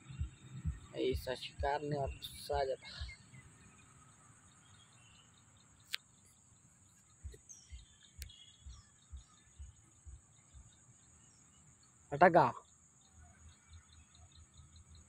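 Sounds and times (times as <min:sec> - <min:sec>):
soft low thumps: 0:00.0 - 0:03.3, 0:07.1 - 0:10.7
faint bird chirps: 0:00.0 - 0:15.0
high-pitched insect drone: 0:00.0 - 0:15.0
sharp clicks: 0:05.8 - 0:06.1, 0:08.2 - 0:08.4.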